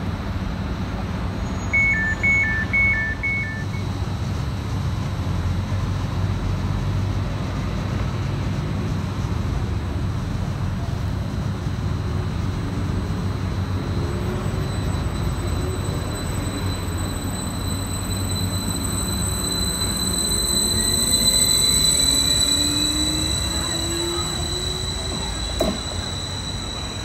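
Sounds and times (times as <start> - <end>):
electric train humming: 0.0 - 7.6, 9.1 - 27.0
high two-tone beep: 1.6 - 3.8.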